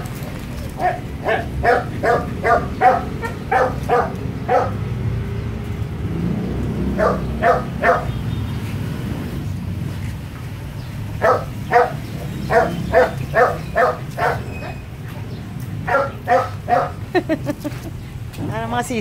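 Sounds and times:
small dog barking: 0.8 - 4.8, 7.0 - 8.1, 11.2 - 14.8, 15.8 - 17.0.

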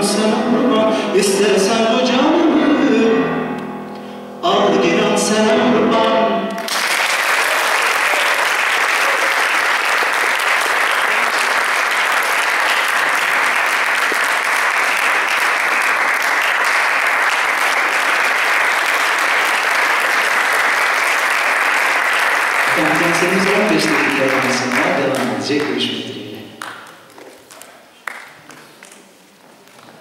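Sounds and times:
man singing: 0.0 - 3.4, 4.4 - 6.6, 22.7 - 26.5
audience applauding: 6.6 - 29.2.

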